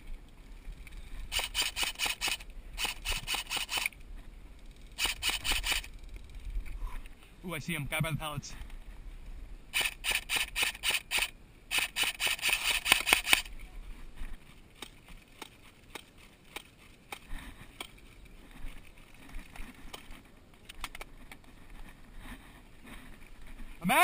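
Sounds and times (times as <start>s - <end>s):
airsoft rifle shots: 1.3s - 3.9s, 5.0s - 5.9s, 9.7s - 13.5s
distant airsoft fire clicks: 1.3s - 4.0s, 5.0s - 6.0s, 9.8s - 13.5s.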